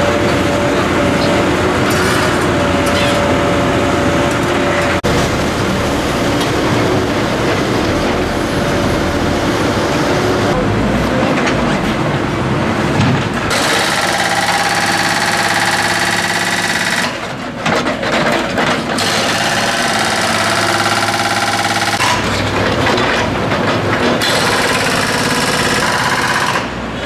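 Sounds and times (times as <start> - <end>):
diesel engine under load: 0.0 - 27.0
hydraulic breaker hammering asphalt: 13.5 - 26.8.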